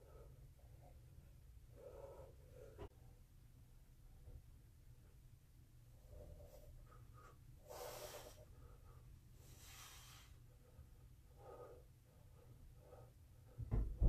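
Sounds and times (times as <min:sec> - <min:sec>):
person breathing: 0:01.7 - 0:03.0, 0:06.0 - 0:13.7.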